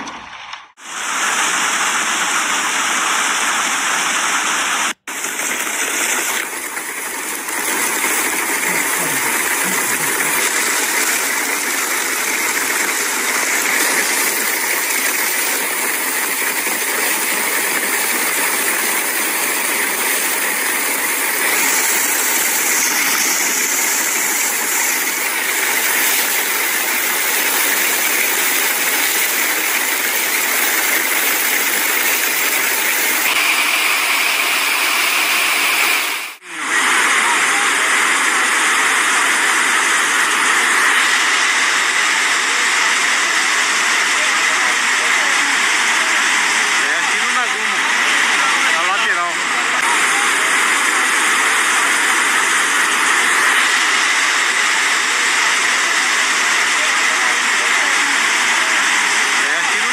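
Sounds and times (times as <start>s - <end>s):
hail pelting down: 5.1s - 36.2s.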